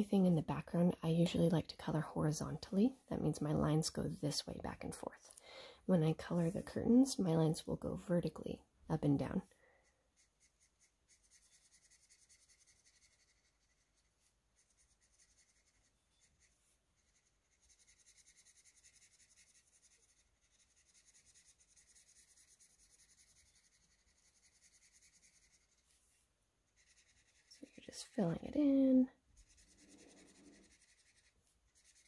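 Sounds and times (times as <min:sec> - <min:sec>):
marker scratching on paper: 0:10.1 - 0:26.0, 0:26.7 - 0:28.4, 0:29.3 - 0:32.0.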